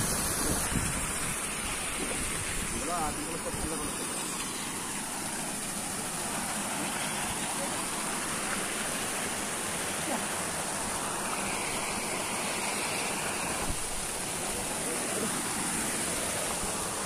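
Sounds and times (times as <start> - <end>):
pond water rushing and splashing: 0.0 - 17.0.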